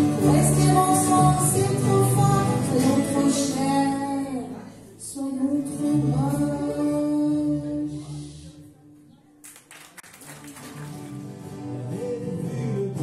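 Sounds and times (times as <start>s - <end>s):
strummed guitars: 0.0s - 4.8s, 10.3s - 13.0s
woman singing: 0.0s - 8.4s.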